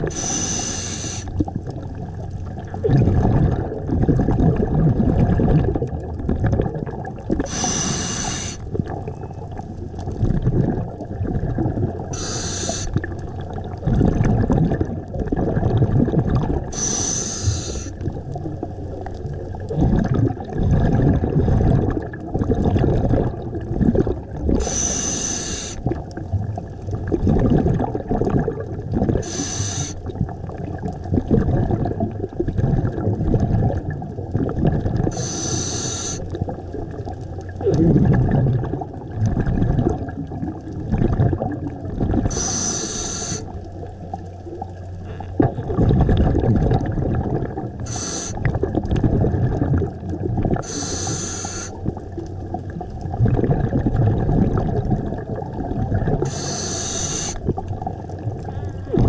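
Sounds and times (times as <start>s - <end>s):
regulator inhale hisses: 0.0s - 1.3s, 7.4s - 8.6s, 12.1s - 13.0s, 16.7s - 18.0s, 24.6s - 25.8s, 29.2s - 30.0s, 35.1s - 36.3s, 42.3s - 43.5s, 47.8s - 48.4s, 50.6s - 51.8s, 56.2s - 57.4s
rumbling exhaust bubbles: 0.0s - 59.0s.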